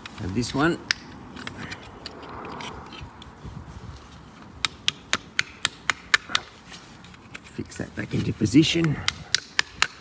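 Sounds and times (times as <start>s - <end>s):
light scraping: 1.3s - 4.5s
sharp plastic clicks: 4.6s - 6.5s, 8.8s - 10.0s.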